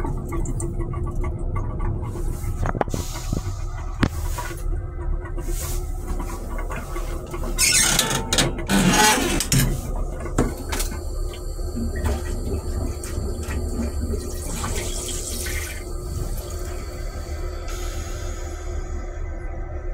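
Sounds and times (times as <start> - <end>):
toilet flush rushing: 0.0 - 19.2
railcar low rumble: 0.0 - 19.9
flush liquid washing into steel bowl: 9.8 - 16.8.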